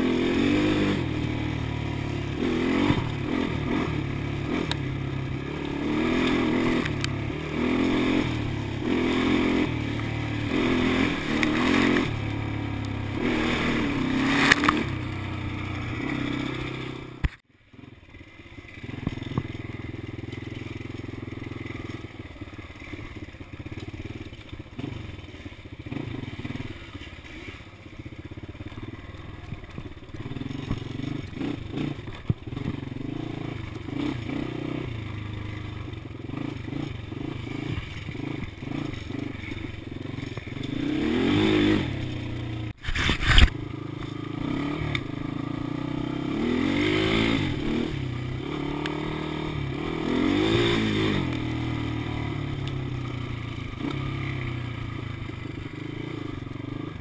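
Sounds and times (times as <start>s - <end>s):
atv engine revving: 0.0s - 57.0s
knocks and scrapes: 42.8s - 44.2s.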